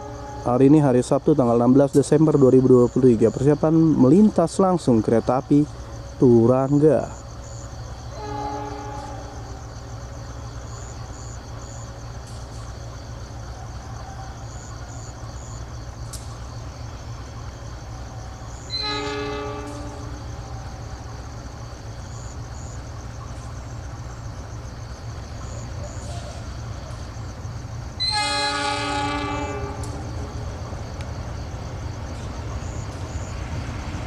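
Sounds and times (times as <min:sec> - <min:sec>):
locomotive horn blasts: 0:00.0 - 0:00.7, 0:08.1 - 0:09.6, 0:18.6 - 0:20.5, 0:28.0 - 0:30.5
insects chirping: 0:00.0 - 0:34.0.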